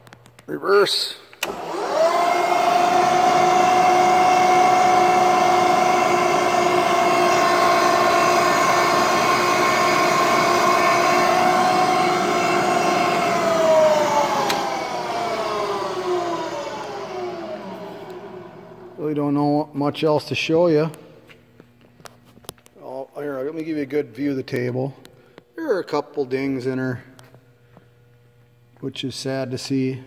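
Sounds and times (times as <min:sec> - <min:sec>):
milling machine motor whining: 0:01.4 - 0:19.5.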